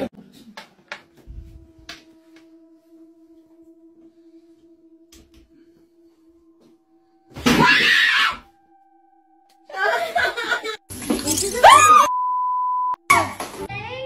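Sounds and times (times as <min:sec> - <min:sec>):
woman screaming: 0:07.4 - 0:08.5, 0:11.5 - 0:12.1.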